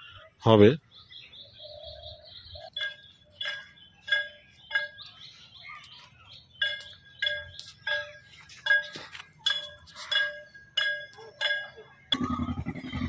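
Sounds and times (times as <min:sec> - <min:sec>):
thin steady whistling tone: 0:01.0 - 0:13.0
short ringing clinks: 0:06.6 - 0:12.5.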